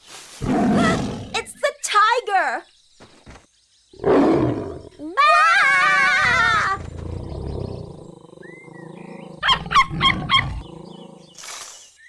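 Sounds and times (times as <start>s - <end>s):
cartoon tiger roar and growl: 0.4s - 1.4s, 4.0s - 5.0s, 5.8s - 11.4s.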